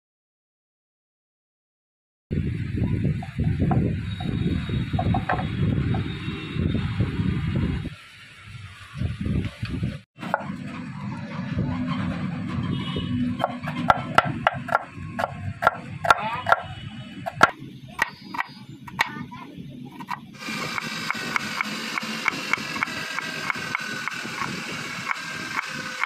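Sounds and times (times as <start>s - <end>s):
knife chopping on wooden board: 13.4s - 16.7s, 17.3s - 19.1s.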